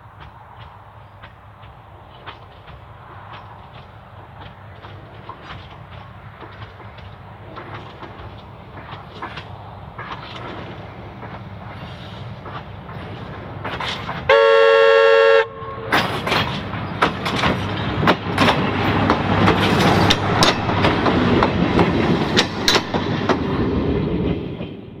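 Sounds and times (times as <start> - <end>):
wheels clattering on rails: 0.0 - 14.6, 15.8 - 25.0
diesel railcar engine: 0.0 - 25.0
train horn: 14.3 - 16.2.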